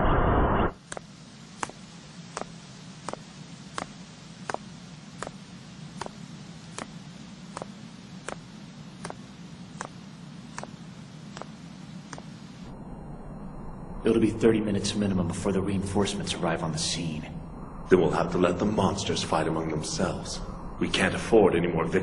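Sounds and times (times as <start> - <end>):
steady hiss and low hum: 0.7 - 22.0
sharp ticking: 6.0 - 12.3.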